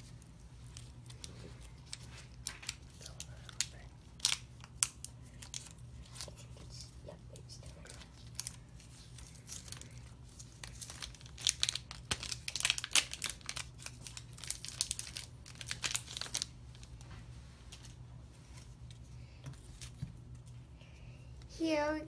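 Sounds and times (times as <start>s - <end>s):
foil wrapper crinkling and tearing: 0.0s - 6.5s, 7.6s - 17.0s.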